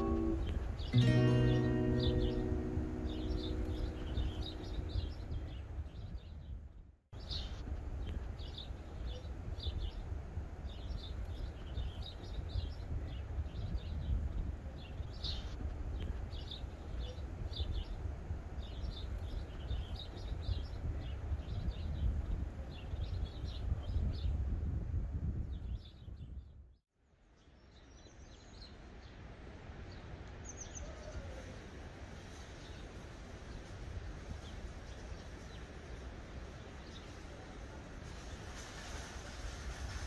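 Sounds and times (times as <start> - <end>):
songbirds chirping: 0.0 - 6.6, 7.2 - 24.4, 32.2 - 37.7
low outdoor rumble: 0.0 - 6.7.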